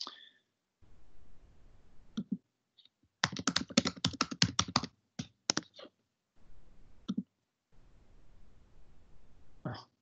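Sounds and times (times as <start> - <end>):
typing on computer keyboard: 3.2 - 5.7.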